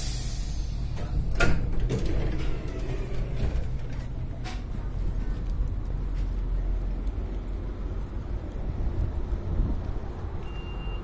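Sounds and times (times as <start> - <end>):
train door clunk: 0.0 - 4.9
low rumble of stopped train: 0.0 - 11.0.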